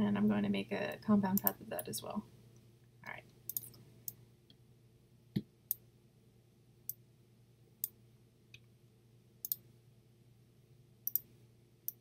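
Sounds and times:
faint low hum: 0:00.0 - 0:12.0
computer mouse clicking: 0:03.5 - 0:04.2, 0:09.4 - 0:09.6, 0:11.1 - 0:11.3.

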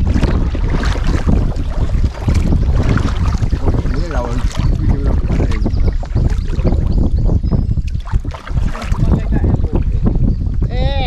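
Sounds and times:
kayak paddling water: 0:00.0 - 0:11.0
wind buffeting microphone: 0:00.0 - 0:11.0.

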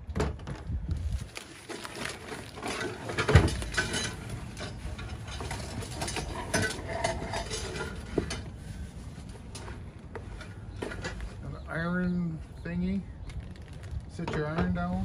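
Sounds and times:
plastic wrapping crinkling: 0:01.0 - 0:04.9, 0:13.3 - 0:14.2
items clinking and knocking: 0:01.3 - 0:08.6, 0:09.4 - 0:11.4.

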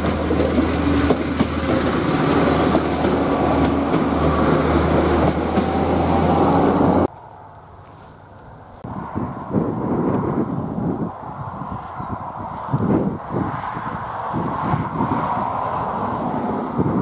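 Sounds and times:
train wheels on rails: 0:00.0 - 0:07.1
diesel train engines humming: 0:00.0 - 0:08.8.

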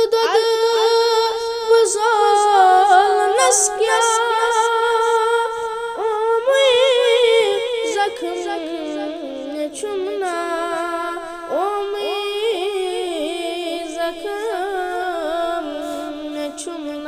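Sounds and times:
man singing devotional melody: 0:00.0 - 0:17.0.

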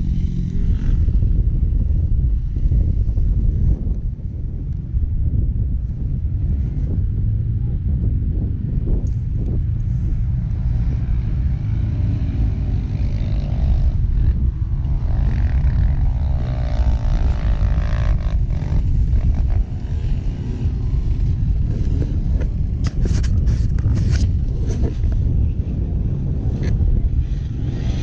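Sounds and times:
wind buffeting microphone: 0:00.0 - 0:28.0
distant engines revving: 0:09.8 - 0:25.2.

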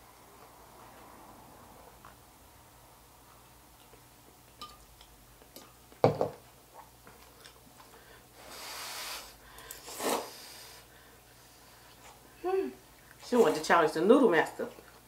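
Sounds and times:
blowing on hot noodles: 0:08.4 - 0:10.9.

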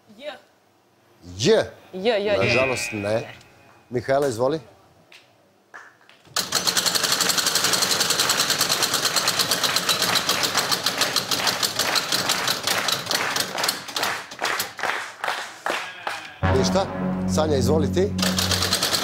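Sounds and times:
prize wheel clicking: 0:18.2 - 0:19.0.

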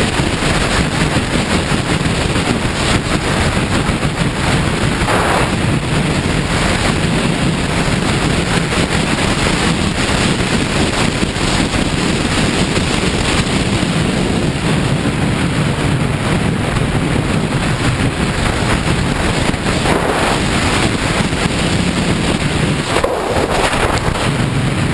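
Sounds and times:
motorcycle engine running: 0:00.0 - 0:24.9
wind noise on microphone: 0:00.0 - 0:24.9.

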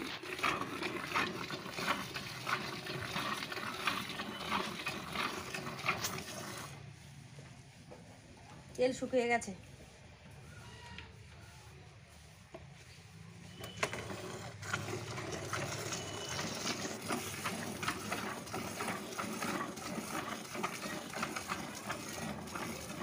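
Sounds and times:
milk squirting into a bucket: 0:00.0 - 0:06.8, 0:13.6 - 0:23.0.

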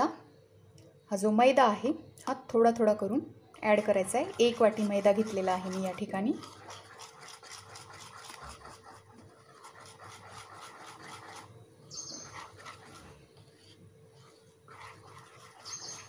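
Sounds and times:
whisk scraping in bowl: 0:03.6 - 0:16.0
high-pitched chirp: 0:11.9 - 0:12.3.

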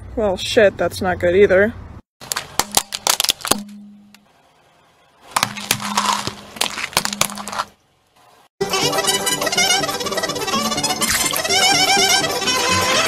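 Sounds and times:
tyre crushing plastic objects: 0:02.2 - 0:03.8, 0:05.3 - 0:07.8
low steady hum: 0:02.6 - 0:08.4.

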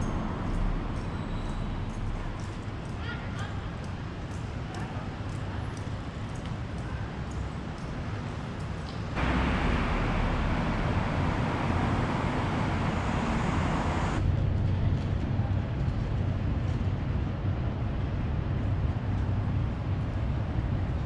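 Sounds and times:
rumble of passing vehicles: 0:00.0 - 0:21.0
hiss of traffic: 0:08.0 - 0:14.2.

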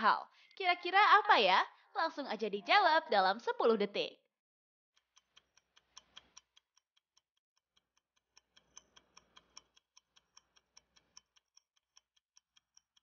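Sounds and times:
clock ticking: 0:05.0 - 0:13.0.

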